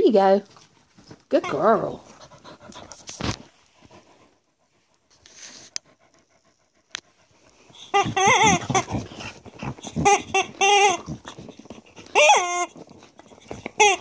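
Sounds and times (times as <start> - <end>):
faint rustling: 0.0 - 13.8
squeaky rubber toy squawks: 7.8 - 14.0.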